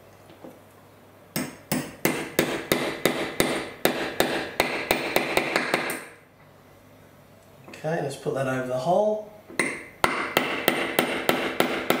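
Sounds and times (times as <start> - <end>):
small hammer tapping metal: 9.6 - 12.0.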